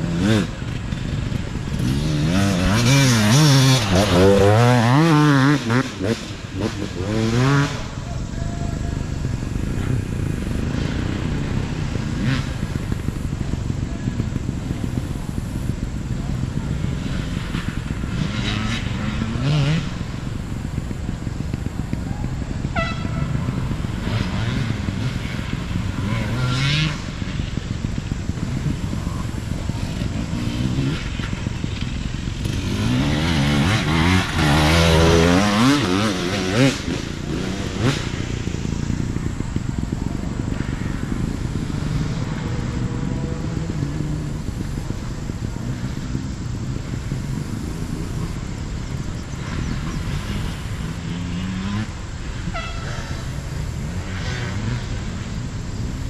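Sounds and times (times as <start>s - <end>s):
dirt bike engines revving: 0.0s - 56.0s.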